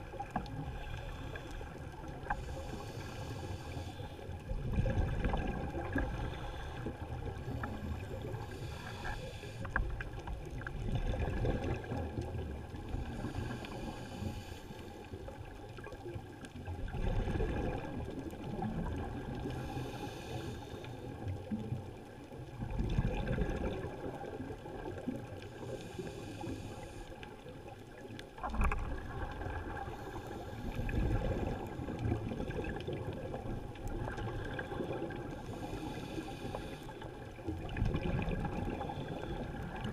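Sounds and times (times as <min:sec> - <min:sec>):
scuba regulator inhale hiss: 0:02.3 - 0:04.3, 0:06.2 - 0:09.8, 0:13.0 - 0:15.1, 0:19.6 - 0:21.1, 0:25.5 - 0:27.3, 0:34.8 - 0:37.1.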